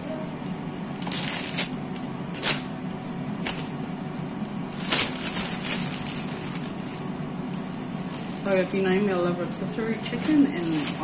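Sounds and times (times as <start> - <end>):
steady low hum: 0.0 - 11.0
plastic bag crinkling: 0.9 - 2.7, 4.7 - 11.0.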